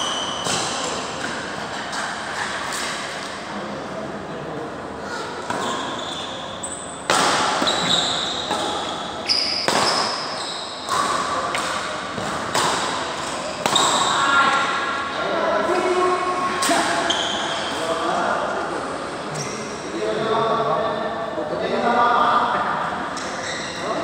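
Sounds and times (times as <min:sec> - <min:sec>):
court shoes squeaking: 0:00.0 - 0:03.4, 0:05.2 - 0:14.5, 0:16.6 - 0:17.9, 0:19.3 - 0:19.8, 0:23.2 - 0:24.0
rackets hitting shuttlecock: 0:07.0 - 0:14.2.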